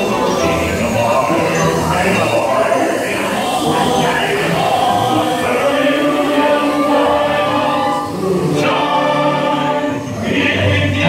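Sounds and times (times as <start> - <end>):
chorus singing over music: 0.0 - 11.0.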